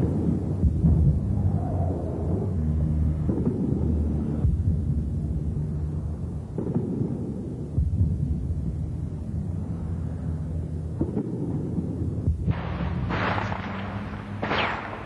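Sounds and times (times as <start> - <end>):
distant weapons fire rumble: 10.9 - 15.0.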